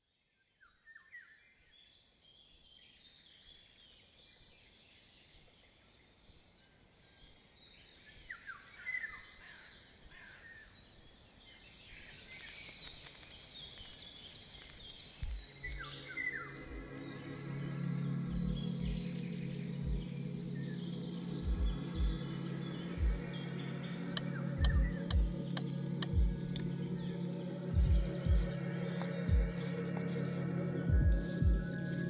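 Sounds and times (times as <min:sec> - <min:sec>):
birds chirping: 0:01.8 - 0:32.0.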